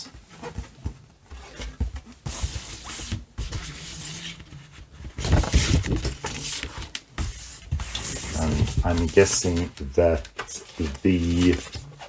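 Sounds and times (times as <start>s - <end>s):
paper sleeves rustling: 0.0s - 12.0s.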